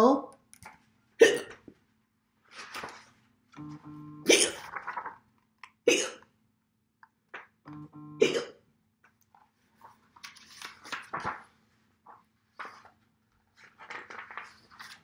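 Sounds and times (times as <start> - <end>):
woman hiccuping: 1.2 - 1.6, 3.6 - 4.7, 5.9 - 6.3, 7.9 - 8.6
book pages rustling: 1.6 - 3.4, 4.5 - 5.6, 9.2 - 15.0
woman humming: 3.6 - 4.6, 7.7 - 8.3.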